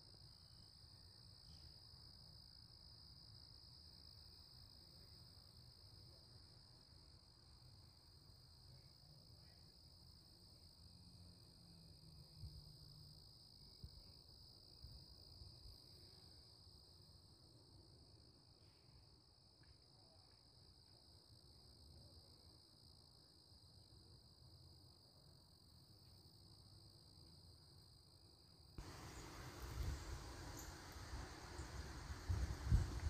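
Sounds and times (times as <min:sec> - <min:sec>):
crickets trilling: 0:28.8 - 0:33.0
low wind rumble: 0:28.8 - 0:33.0.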